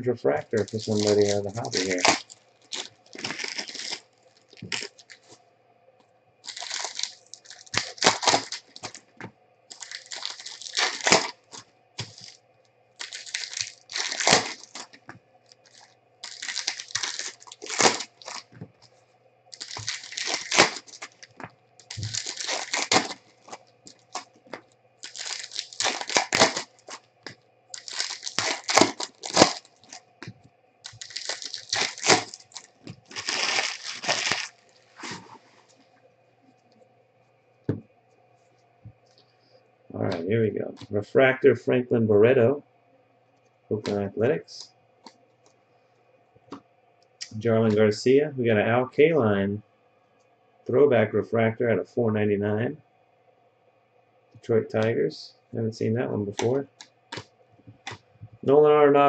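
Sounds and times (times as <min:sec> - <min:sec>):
foil packs tearing and crinkling: 0:00.5 - 0:05.4, 0:06.4 - 0:09.1, 0:09.7 - 0:12.4, 0:13.0 - 0:15.0, 0:15.6 - 0:18.6, 0:19.5 - 0:27.0, 0:27.8 - 0:30.0, 0:30.8 - 0:35.4.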